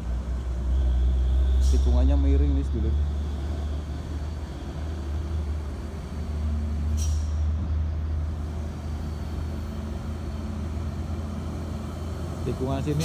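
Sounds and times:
heavy trucks engine rumble: 0.0s - 13.0s
air brake hiss: 1.4s - 2.0s, 6.9s - 7.5s.

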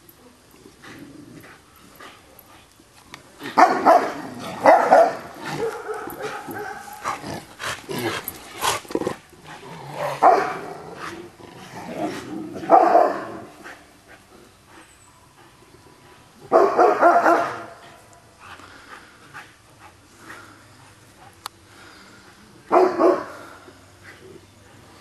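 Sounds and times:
dog barking: 3.6s - 7.0s, 10.2s - 10.7s, 12.7s - 13.4s, 16.5s - 17.8s, 22.7s - 23.3s.

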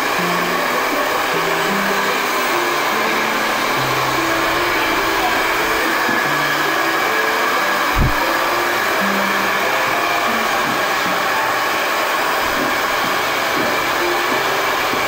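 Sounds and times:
low thump: 8.0s - 8.2s.

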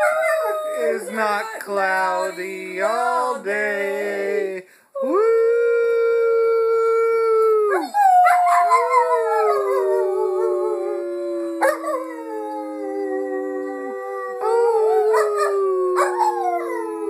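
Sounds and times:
dog howling: 0.0s - 1.5s, 7.7s - 17.0s.

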